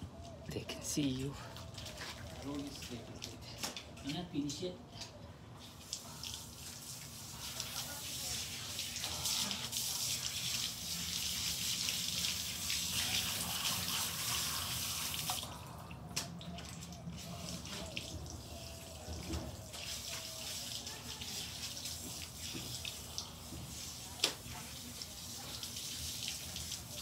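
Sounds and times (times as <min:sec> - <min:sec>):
water dripping: 0:01.2 - 0:27.0
small clicks and splashes: 0:01.6 - 0:04.3
hose spraying water: 0:05.6 - 0:15.6, 0:17.1 - 0:27.0.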